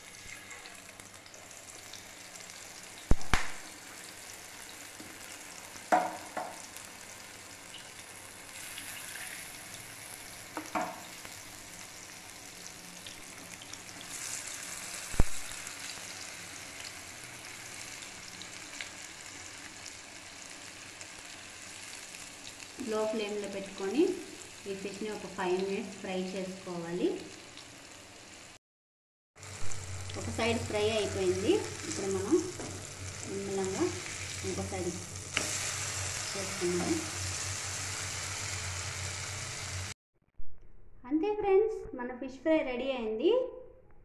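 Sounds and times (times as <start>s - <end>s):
fish sizzling in oil: 0.0s - 28.6s, 29.4s - 40.0s.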